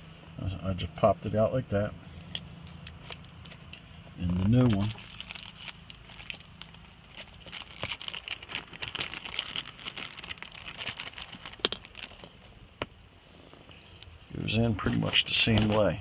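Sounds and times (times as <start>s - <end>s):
plastic rustling and crinkling: 4.2s - 12.5s, 14.8s - 16.0s.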